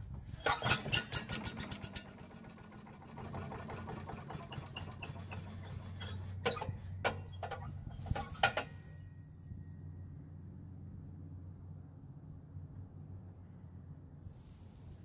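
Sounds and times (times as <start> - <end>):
engine firing ticks: 0.0 - 7.8
small engine running: 0.0 - 8.3
short engine bursts: 0.0 - 10.4.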